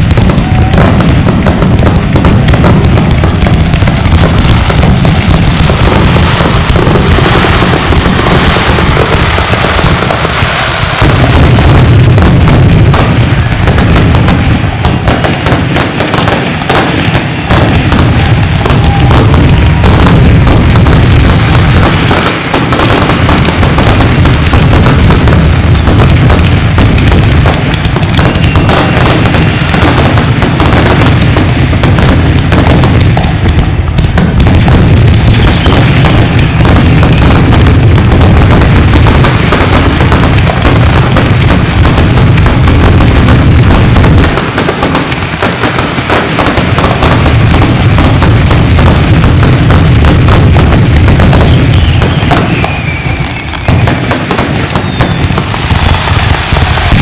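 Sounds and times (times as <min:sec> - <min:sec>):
fireworks bursting and crackling: 0:00.0 - 0:57.0.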